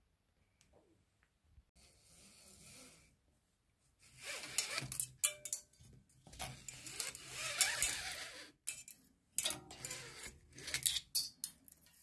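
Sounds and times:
cable pulled through housing: 0:04.2 - 0:05.2, 0:06.3 - 0:11.2.

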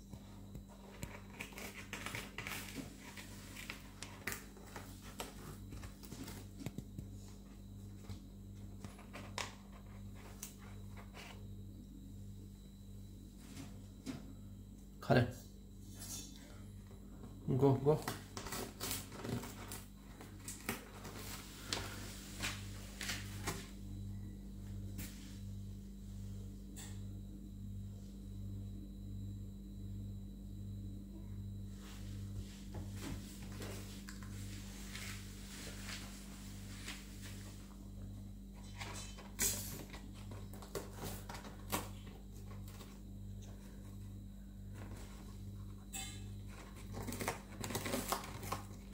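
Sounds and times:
faint low hum: 0:00.0 - 0:48.9
cardboard crackling and tearing: 0:18.4 - 0:19.9, 0:46.6 - 0:48.9.

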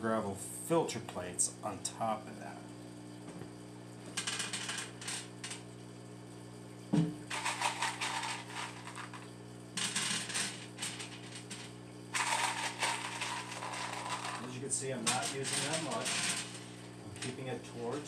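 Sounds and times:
steady low hum: 0:00.0 - 0:18.0
thump: 0:06.9 - 0:07.2.

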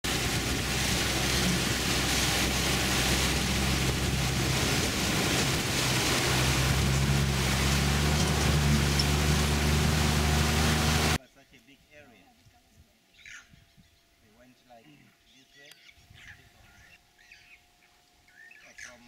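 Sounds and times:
off-road vehicle engine under load: 0:00.0 - 0:11.2
water splashing around wheels: 0:00.0 - 0:11.2.

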